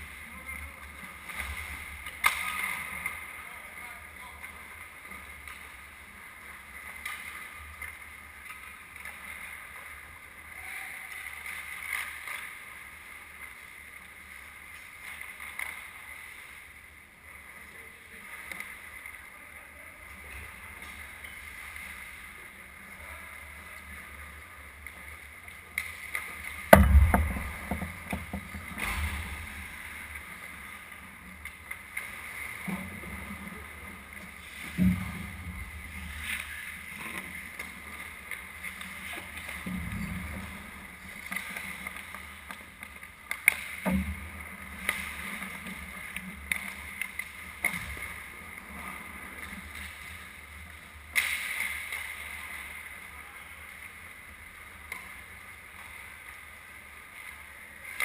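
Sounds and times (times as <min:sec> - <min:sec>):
steady rink hum: 0:00.0 - 0:58.0
small knocks: 0:26.7 - 0:29.3
loud bang: 0:26.8 - 0:29.6.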